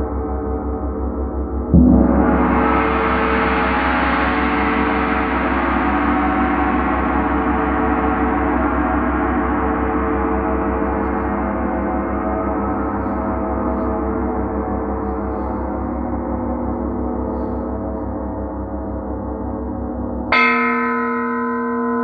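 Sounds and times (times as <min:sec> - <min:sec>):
gong struck with mallet: 0:01.7 - 0:07.4, 0:19.3 - 0:22.0.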